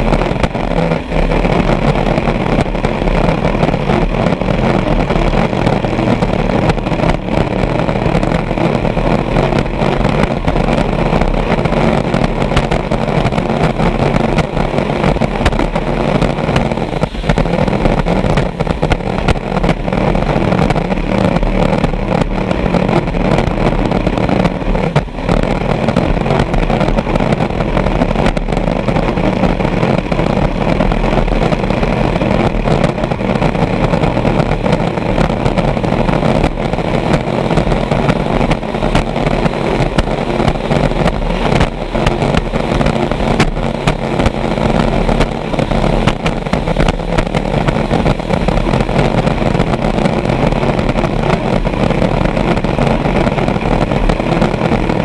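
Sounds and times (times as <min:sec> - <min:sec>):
boat engine running: 0:00.0 - 0:55.0
rushing wind: 0:00.0 - 0:55.0
water noise: 0:00.0 - 0:55.0.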